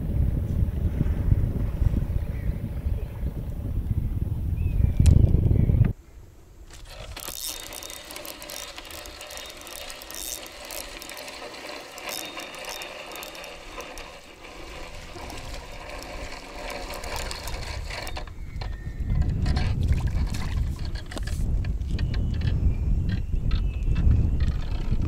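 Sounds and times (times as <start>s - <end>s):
fishing reel clicking: 6.7s - 21.4s.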